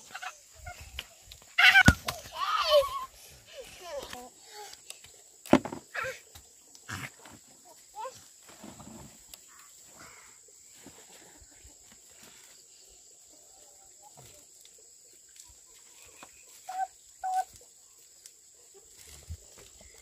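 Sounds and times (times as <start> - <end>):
farm animal calls: 16.0 - 17.6.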